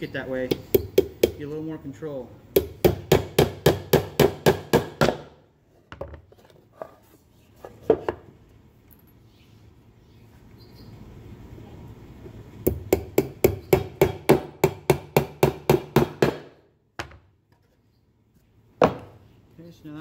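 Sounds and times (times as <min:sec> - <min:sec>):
hammer driving nail into wood: 0:12.7 - 0:17.1.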